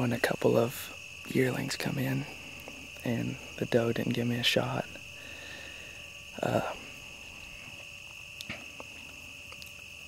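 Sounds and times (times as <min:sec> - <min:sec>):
crickets chirring: 0:00.0 - 0:10.0
faint clicks: 0:08.1 - 0:09.9.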